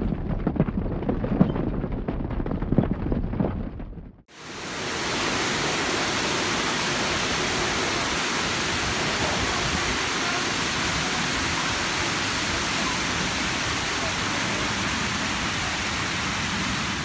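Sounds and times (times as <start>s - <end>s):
water rushing: 4.3s - 17.0s.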